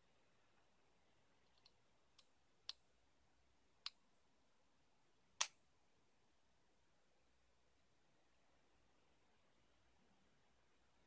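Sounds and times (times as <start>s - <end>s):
tablet parts clicking: 1.4s - 2.8s.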